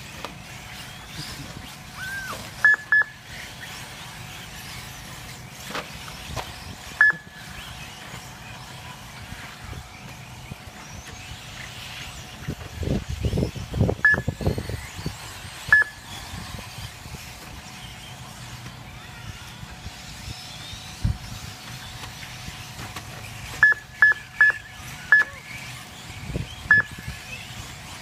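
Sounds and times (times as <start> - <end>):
short high electronic beeps: 7.0 - 7.3.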